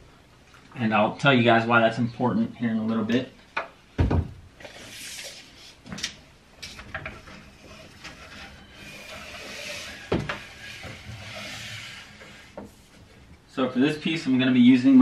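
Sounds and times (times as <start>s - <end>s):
board sliding hiss: 4.6s - 5.8s, 8.8s - 13.0s.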